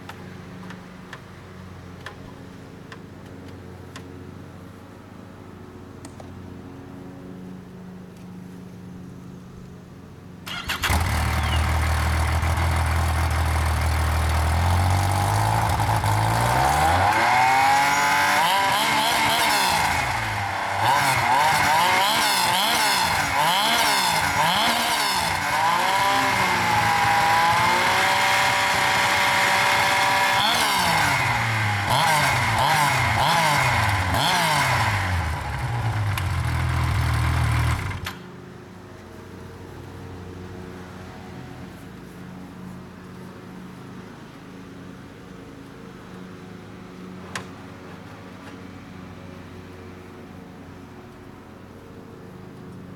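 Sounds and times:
snowmobile engine idling and revving: 10.5s - 44.3s.

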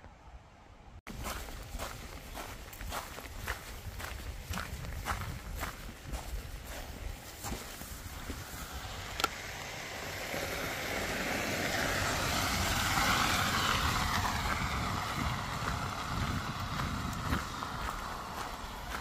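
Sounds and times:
vehicle passing by: 6.6s - 19.0s.

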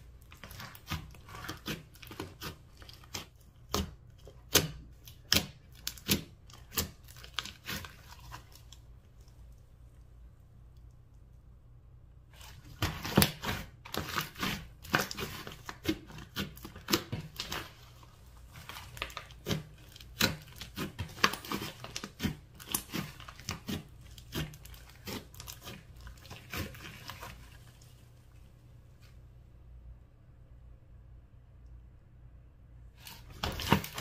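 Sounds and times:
slime squelching and popping: 0.2s - 9.5s, 12.4s - 27.9s.

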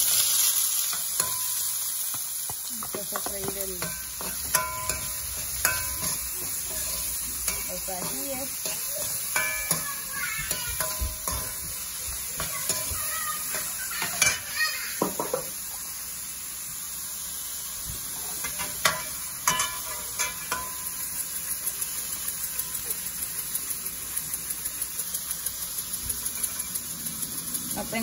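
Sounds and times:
vegetables sizzling in oil: 0.0s - 28.0s
metal spoon scraping a pan: 0.1s - 2.2s, 2.8s - 14.6s, 18.4s - 21.0s, 26.2s - 28.0s.

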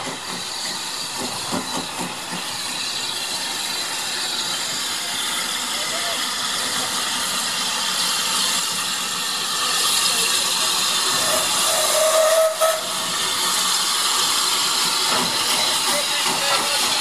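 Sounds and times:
steam hissing: 0.0s - 17.0s
faint steam whistle: 11.2s - 13.1s.

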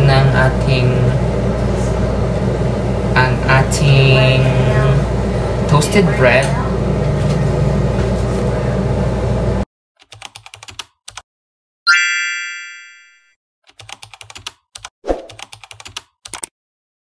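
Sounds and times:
keyboard typing clicks: 10.0s - 11.2s, 13.7s - 16.5s
bell ding: 11.9s - 13.3s.

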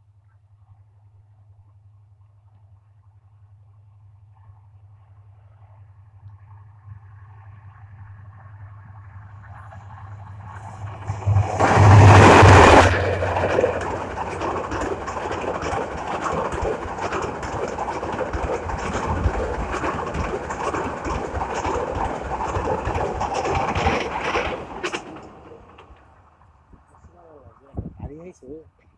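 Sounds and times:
diesel locomotive passing: 6.6s - 27.5s
train wheels clattering on rails: 9.4s - 26.2s.

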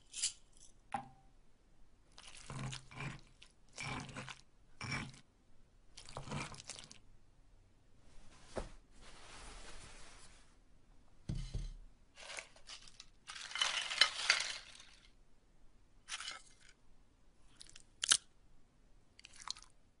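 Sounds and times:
food crunching and crinkling: 17.5s - 18.3s, 19.2s - 19.8s.

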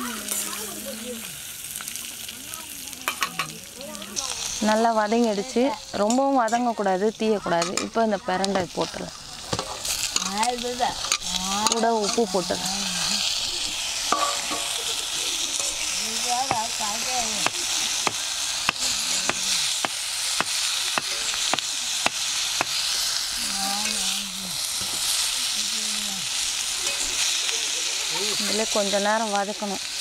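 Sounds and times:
stems sizzling in oil: 0.0s - 30.0s
metal spatula scraping and tapping pan: 7.5s - 12.4s, 14.1s - 14.8s.

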